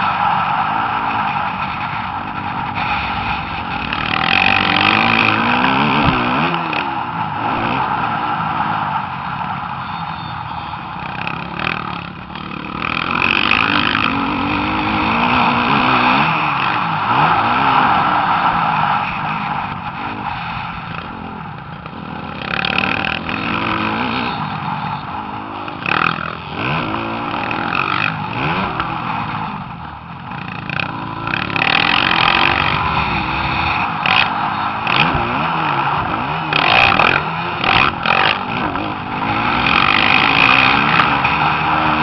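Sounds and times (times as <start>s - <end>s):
bursts of rushing noise: 0.0s - 42.0s
dirt bike engine revving: 0.0s - 42.0s.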